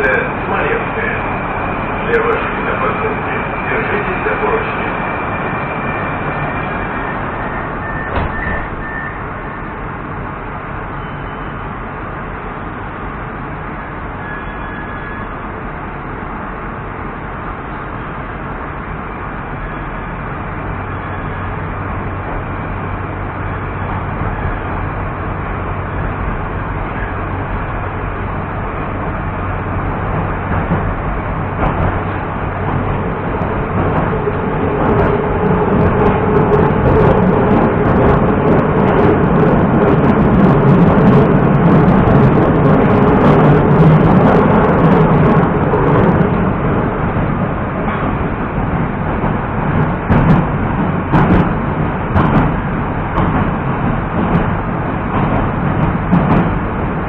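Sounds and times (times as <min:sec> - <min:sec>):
train running noise: 0:00.0 - 0:57.0
wheels clicking on rails: 0:29.8 - 0:57.0.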